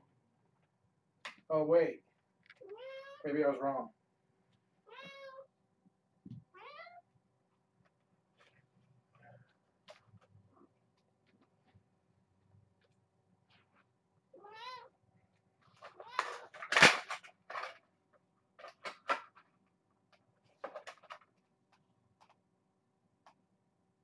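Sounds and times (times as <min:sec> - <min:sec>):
kitten meowing: 0:02.6 - 0:03.2, 0:04.9 - 0:05.4, 0:06.5 - 0:07.0, 0:14.4 - 0:14.9.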